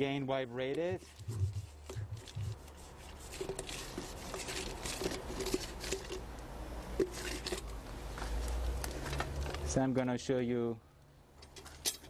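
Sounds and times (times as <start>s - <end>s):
hand scoop scraping wet concrete: 0.8s - 6.2s.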